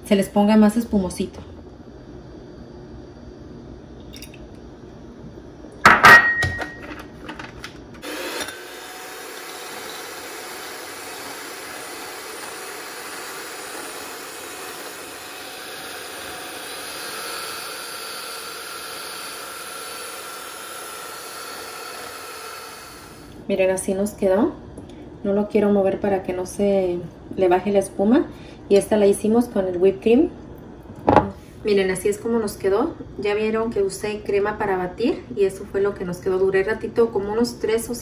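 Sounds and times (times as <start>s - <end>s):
electric hand mixer whipping cream: 8.0s - 23.3s.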